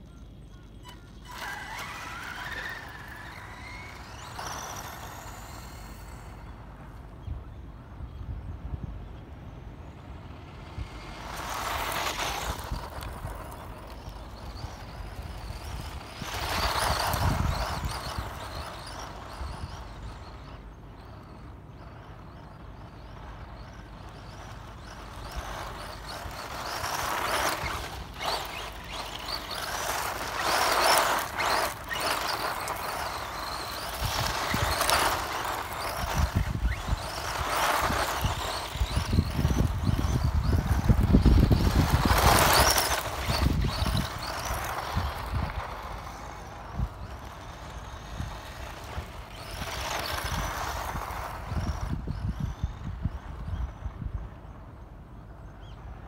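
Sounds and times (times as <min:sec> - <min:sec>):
electric motor whine: 0:00.9 - 0:07.1, 0:10.2 - 0:21.3, 0:22.0 - 0:53.8
tyres spraying gravel: 0:01.2 - 0:06.6, 0:10.3 - 0:20.3, 0:23.2 - 0:52.4.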